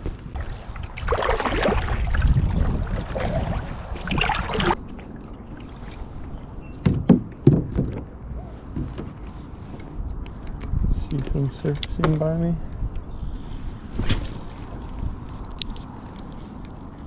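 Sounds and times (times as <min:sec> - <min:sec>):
low wind rumble: 0:00.0 - 0:17.0
kayak paddle splashing water: 0:00.4 - 0:06.1
sharp knocks: 0:06.8 - 0:08.0.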